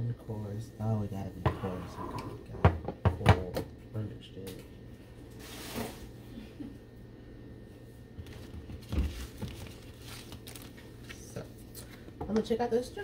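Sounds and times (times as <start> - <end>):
paper crinkling and rustling: 8.2 - 11.4.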